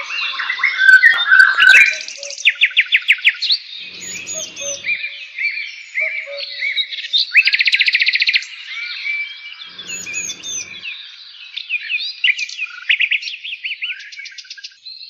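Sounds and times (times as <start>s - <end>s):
songbirds singing: 0.0s - 7.8s, 8.4s - 12.6s.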